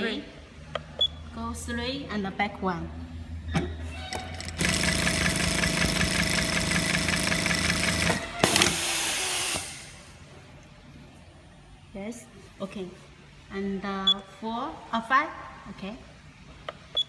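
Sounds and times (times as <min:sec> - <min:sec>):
sewing machine stitching: 0:04.4 - 0:08.8.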